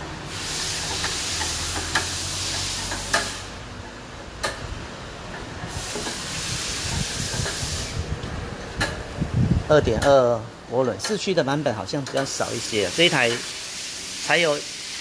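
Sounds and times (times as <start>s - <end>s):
air hissing: 0.0s - 3.7s, 5.6s - 9.1s, 12.2s - 15.0s.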